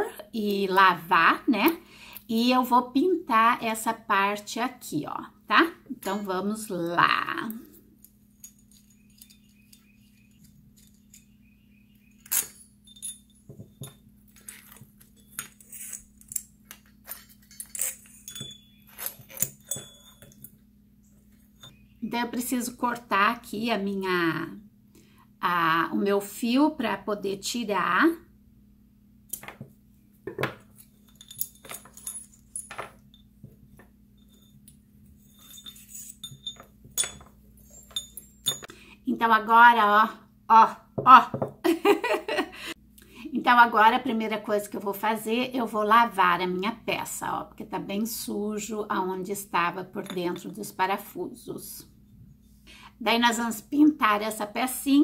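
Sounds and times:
metal and glass parts clinking: 8.0 - 20.6, 30.4 - 38.7.

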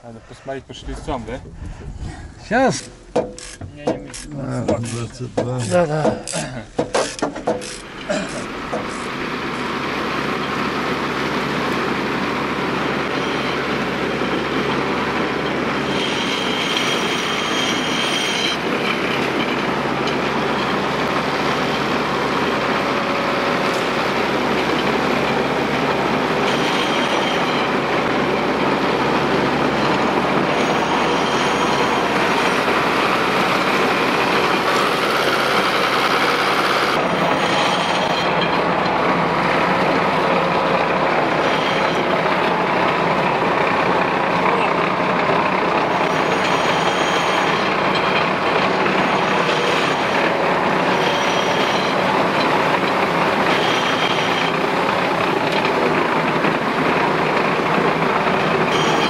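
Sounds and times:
tracked vehicle engine running: 0.0 - 59.0
tracks clattering: 0.5 - 59.0
high squeal: 12.8 - 38.7, 41.2 - 42.7, 45.5 - 55.9, 58.5 - 59.0.

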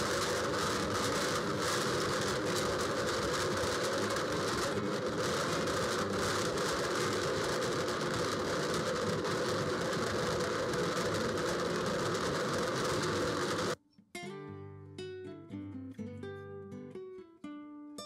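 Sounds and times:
acoustic guitar music: 0.0 - 8.0, 13.7 - 18.0
blender grinding frozen fruit: 0.0 - 13.8.

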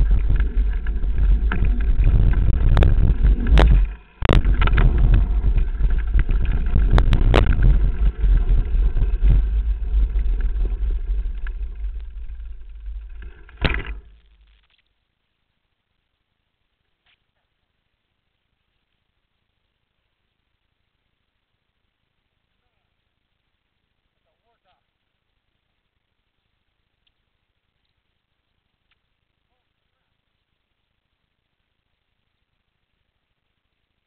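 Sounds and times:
bike knocks and rattles: 0.0 - 14.2
wind and trail rumble: 0.0 - 14.2.

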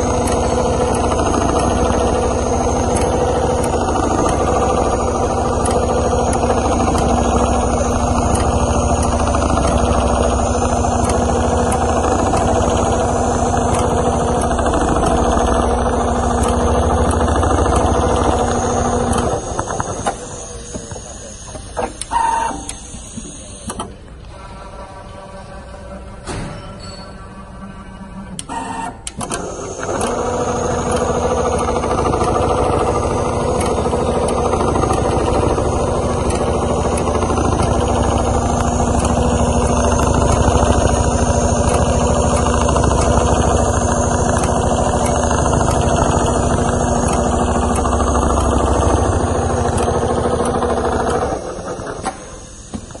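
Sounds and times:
sewing machine stitching: 0.0 - 22.4, 28.5 - 53.0
machine clicks: 0.0 - 24.4, 28.3 - 53.0
steady hum: 0.0 - 53.0.

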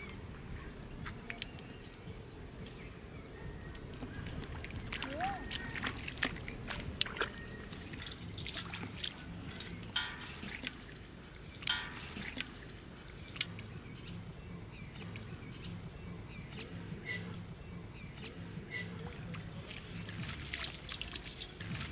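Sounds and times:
person wading through floodwater: 0.0 - 15.3, 18.4 - 21.9
small sharp splashes: 4.3 - 13.6, 19.1 - 21.9.

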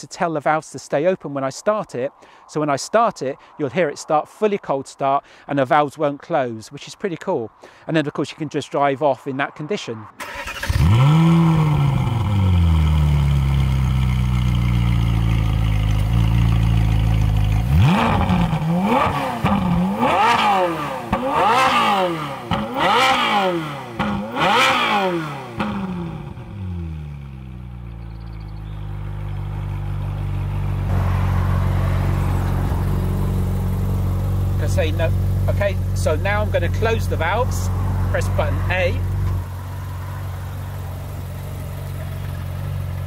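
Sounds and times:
car engine starting and revving: 10.2 - 43.0.

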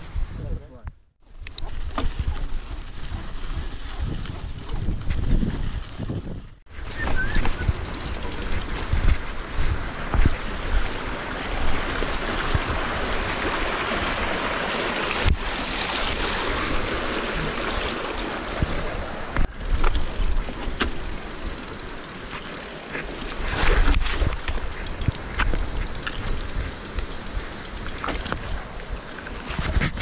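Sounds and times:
wind rumble on microphone: 0.0 - 14.3, 28.2 - 30.0
stream rushing over rocks: 9.7 - 27.2
bike knocking on rocks: 19.4 - 23.2, 24.0 - 28.6.

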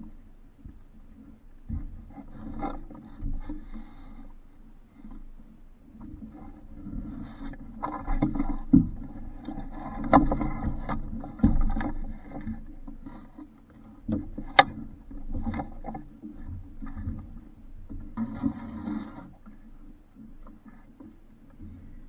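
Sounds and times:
water sloshing against hull: 0.0 - 22.0
knocks and thumps on hull: 5.9 - 19.6.

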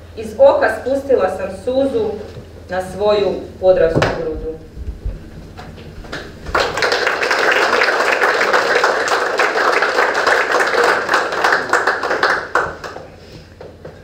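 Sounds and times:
audience applauding: 6.0 - 13.2.

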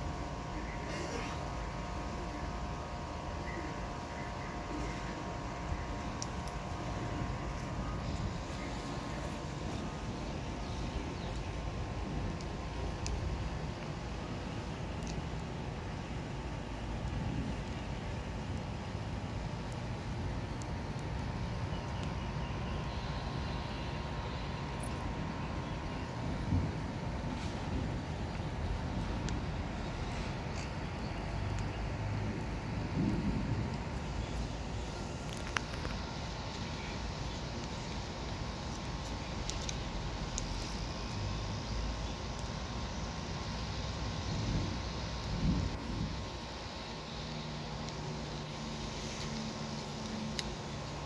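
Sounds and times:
low background rumble: 0.0 - 51.0
faint clicks: 29.2 - 31.8.

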